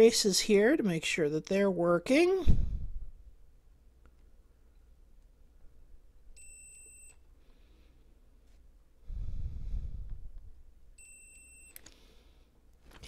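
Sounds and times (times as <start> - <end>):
low breathy rumble: 2.4 - 3.2, 9.0 - 10.6
multimeter continuity beep: 6.4 - 7.3, 11.0 - 11.9.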